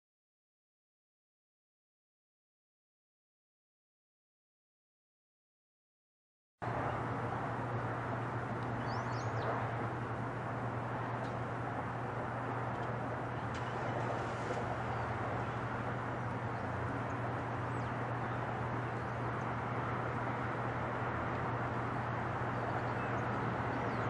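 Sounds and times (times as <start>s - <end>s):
jet engines rumbling: 6.6s - 24.0s
bird chirps: 8.8s - 9.6s, 22.5s - 24.0s.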